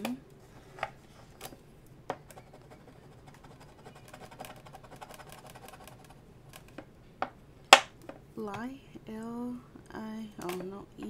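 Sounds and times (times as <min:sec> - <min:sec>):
pen scratching card: 0:02.3 - 0:06.2
pen tapping card: 0:07.2 - 0:07.9.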